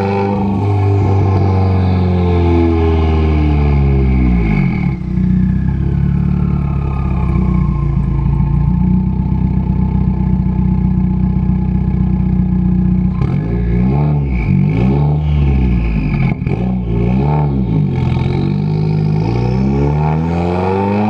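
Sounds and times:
car engine idling: 0.0s - 14.7s.

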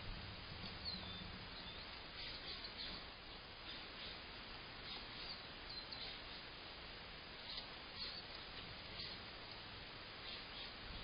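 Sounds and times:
outdoor background hiss: 0.0s - 11.0s
faint bird chirps: 0.6s - 6.5s, 7.4s - 9.3s, 10.1s - 11.0s.

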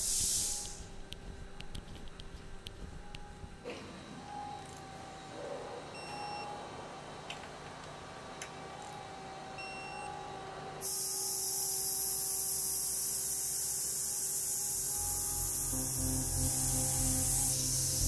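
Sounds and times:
loud high hiss: 0.0s - 0.9s, 10.8s - 18.0s.

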